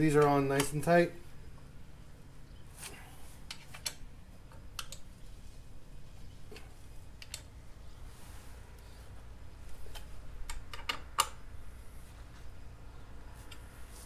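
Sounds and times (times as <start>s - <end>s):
allen key clicking on bolts: 9.9s - 11.4s.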